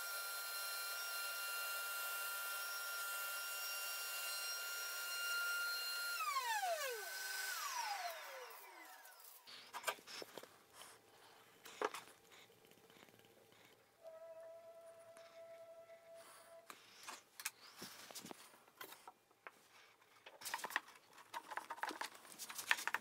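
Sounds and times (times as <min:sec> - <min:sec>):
router running high pitch: 0:00.0 - 0:09.4.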